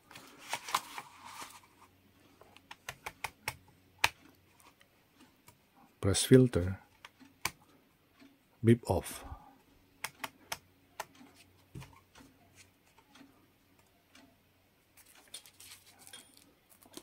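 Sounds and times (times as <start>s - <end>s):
handling rustle: 15.0s - 17.0s.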